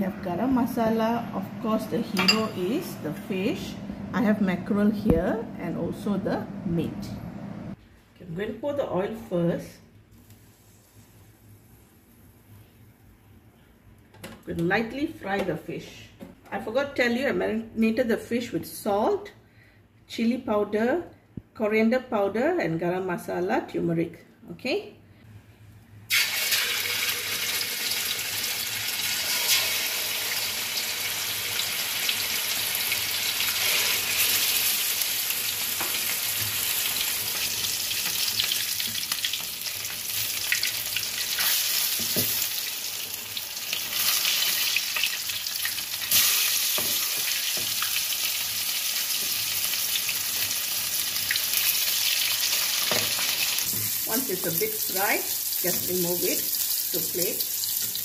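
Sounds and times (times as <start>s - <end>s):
fish sizzling in hot oil: 26.1s - 58.0s.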